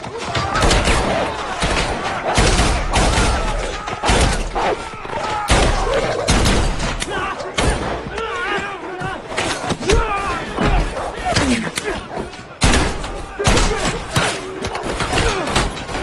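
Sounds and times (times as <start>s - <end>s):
sharp gunshots: 0.6s - 4.7s, 5.5s - 7.0s, 12.6s - 15.8s.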